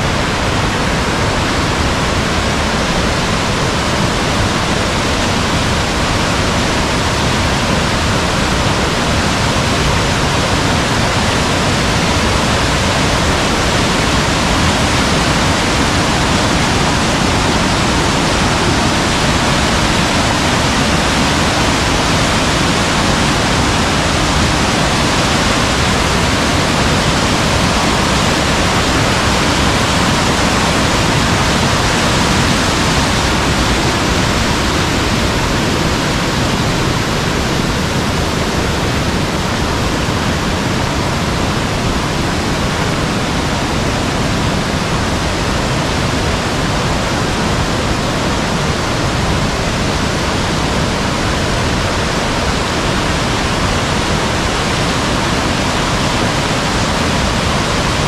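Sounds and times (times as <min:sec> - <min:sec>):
water rushing: 0:00.0 - 0:58.0.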